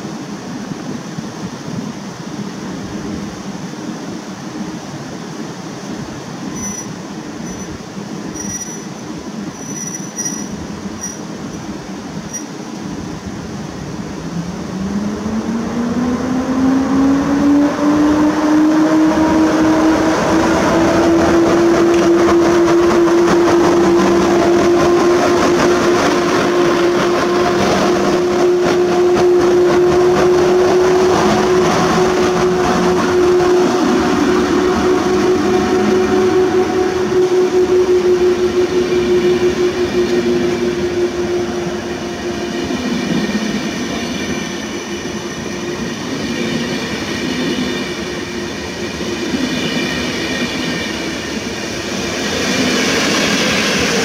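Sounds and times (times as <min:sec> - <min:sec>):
electric locomotive rumble: 0:00.0 - 0:54.0
train wheels on rails: 0:00.0 - 0:54.0
rising motor whine: 0:14.3 - 0:46.2.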